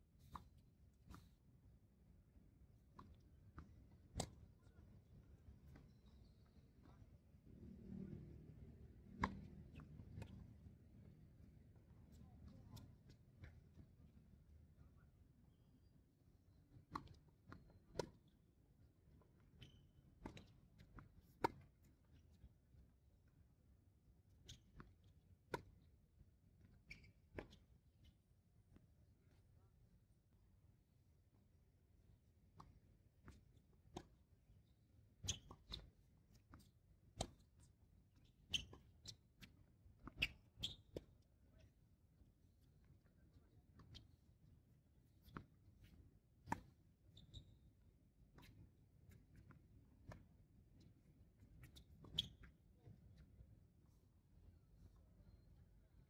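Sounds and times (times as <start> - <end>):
tennis ball struck by rackets: 9.2 - 9.4
tennis ball bouncing: 9.2 - 10.4
shoe squeak: 19.6 - 20.0, 26.9 - 27.2, 35.2 - 35.8, 38.5 - 39.2, 40.1 - 40.9, 47.1 - 47.6, 51.7 - 52.5.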